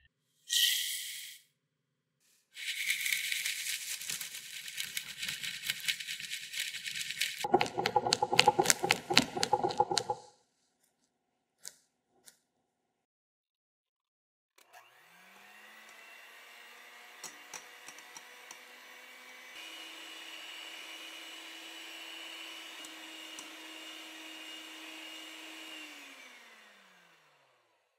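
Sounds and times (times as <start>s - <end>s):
sugar pouring hiss: 2.6s - 10.2s
wire whisk beating cream in glass bowl: 2.6s - 10.2s.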